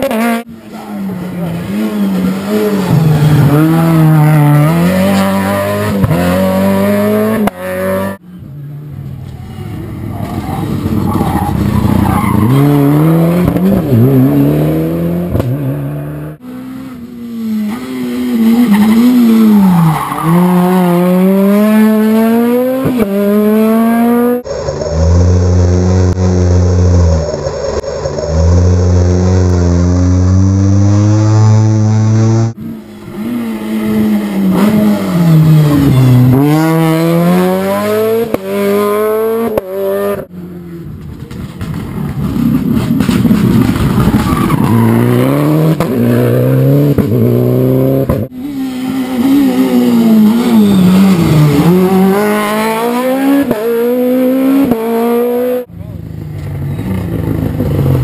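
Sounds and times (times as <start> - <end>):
rally car engines revving: 0.0 - 58.0
tyres squealing on tarmac: 48.5 - 51.8.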